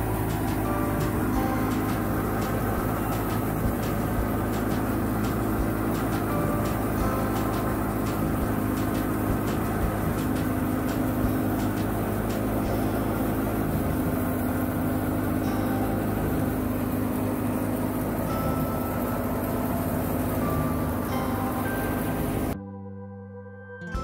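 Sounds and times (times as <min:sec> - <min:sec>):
tractor-driven thresher running: 0:00.0 - 0:22.6.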